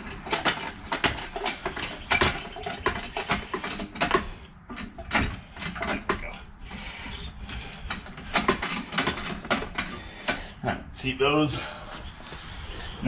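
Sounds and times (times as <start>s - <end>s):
sharp clicks and knocks of parts: 0.0s - 6.3s, 7.5s - 10.6s.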